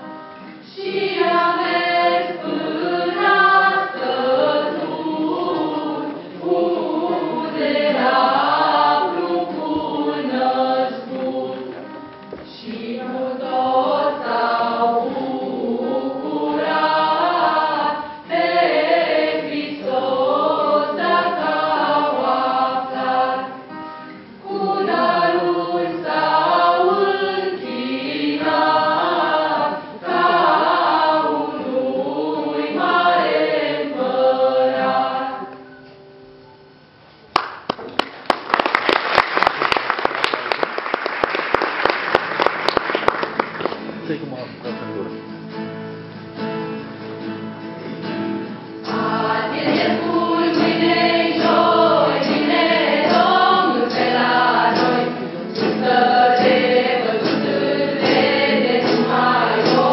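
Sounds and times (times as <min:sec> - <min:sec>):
folk choir singing a carol: 0:00.6 - 0:35.8, 0:48.0 - 0:59.9.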